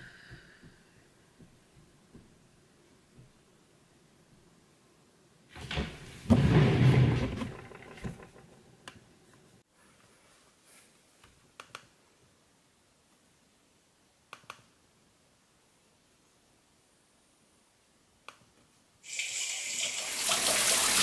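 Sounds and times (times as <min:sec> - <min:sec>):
handling rustling and bumping: 0:05.6 - 0:08.6.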